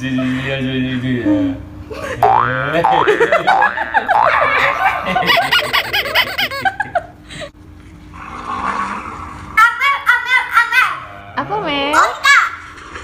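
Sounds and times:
man laughing: 1.9s - 7.2s
boy laughing: 3.0s - 7.2s.

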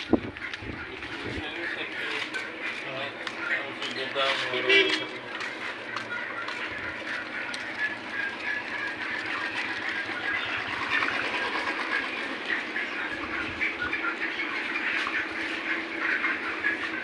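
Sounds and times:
chicks peeping and cheeping: 0.0s - 17.0s.

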